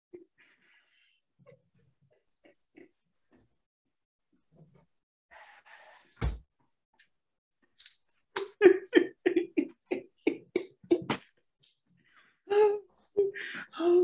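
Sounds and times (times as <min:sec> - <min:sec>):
man laughing hard: 0:08.6 - 0:11.2.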